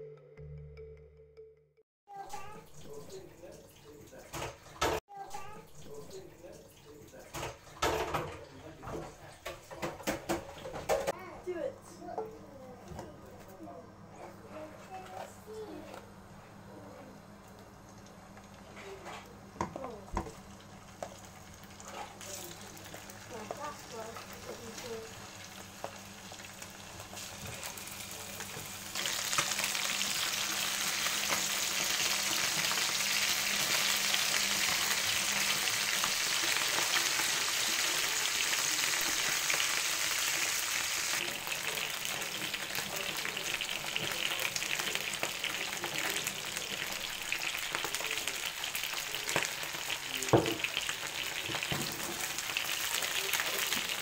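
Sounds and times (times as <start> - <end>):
chicken wings sizzling in pan: 17.5 - 54.0.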